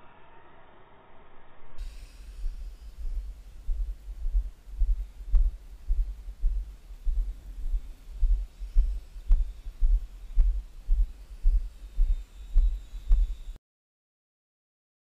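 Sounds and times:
kick drum beat: 3.1s - 13.3s.

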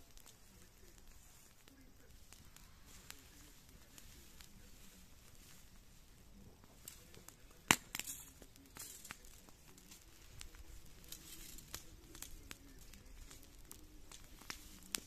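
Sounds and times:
grass pile burning and crackling: 0.0s - 15.0s
fire sharp pop: 6.6s - 15.0s.

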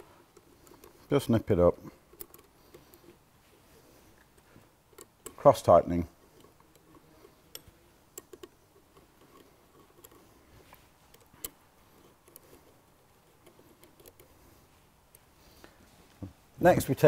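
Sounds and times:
allen key clicking on metal bolts: 0.0s - 3.1s, 4.3s - 10.3s, 11.0s - 14.4s.

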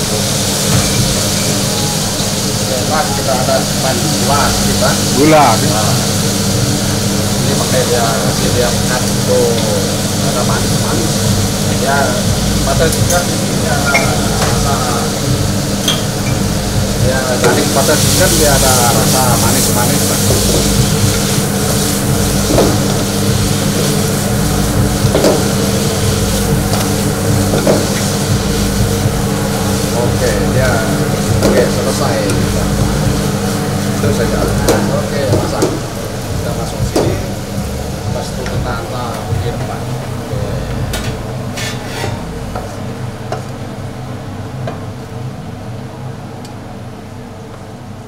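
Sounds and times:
kitchen equipment drone: 0.0s - 48.0s
steady low hum: 0.0s - 48.0s
utensil scraping cookware: 41.0s - 42.2s.

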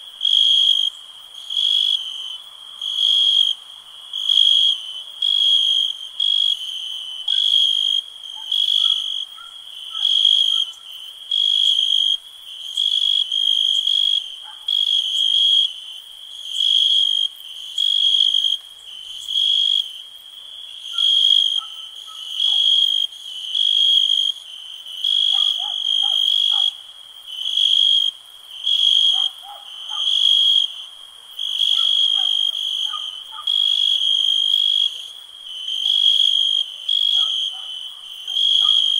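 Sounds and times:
crickets chirping: 0.0s - 38.9s
night creatures calling: 7.3s - 11.8s, 20.8s - 23.7s, 25.1s - 26.8s, 27.4s - 30.8s, 31.4s - 38.9s.

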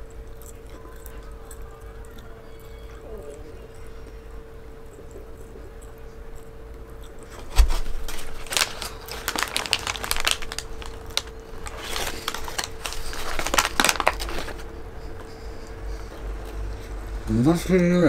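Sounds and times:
paper wrapper crinkling: 7.3s - 14.7s.

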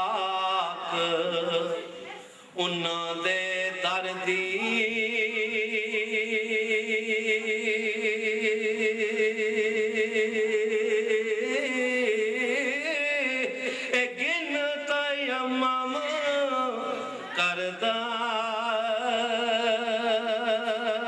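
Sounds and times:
man singing: 0.0s - 21.0s.

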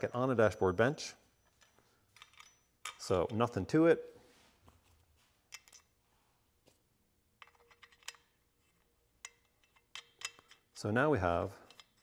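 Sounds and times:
metal hardware clicking: 1.5s - 3.5s, 5.5s - 5.9s, 7.4s - 12.0s.

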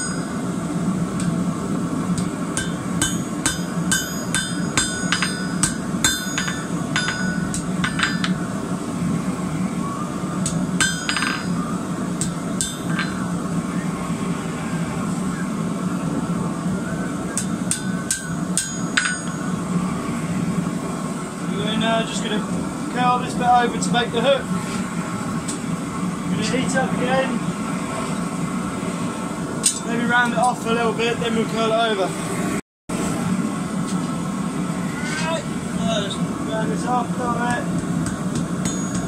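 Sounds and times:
hammer ringing on anvil: 0.0s - 0.4s, 2.2s - 8.4s, 10.4s - 11.6s, 12.2s - 13.3s, 17.4s - 19.6s, 38.1s - 39.0s
low hum: 0.0s - 30.2s.

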